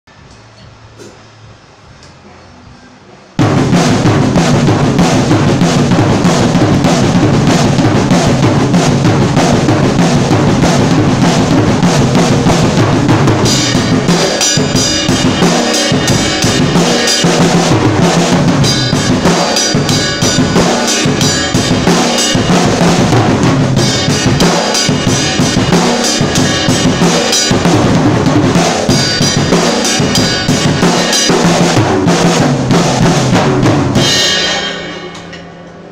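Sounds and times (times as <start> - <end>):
cymbals: 3.4 - 35.9
drum kit played loudly: 3.4 - 35.9.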